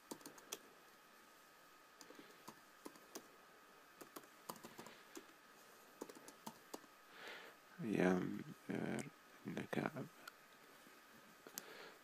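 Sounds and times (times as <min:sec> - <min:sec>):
computer keyboard typing: 0:00.0 - 0:00.6, 0:02.0 - 0:03.3, 0:04.0 - 0:05.2, 0:06.0 - 0:06.9
faint steady whine: 0:00.0 - 0:12.0.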